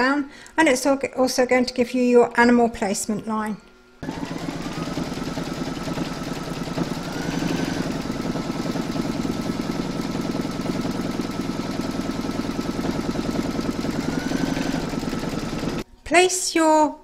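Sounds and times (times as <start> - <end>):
embroidery machine stitching: 4.0 - 15.8
short rising whine: 4.0 - 15.8.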